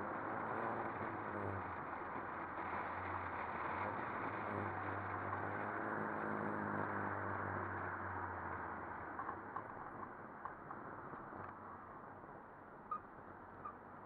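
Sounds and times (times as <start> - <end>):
car engine hum: 0.0 - 14.0
road and wind noise: 0.0 - 14.0.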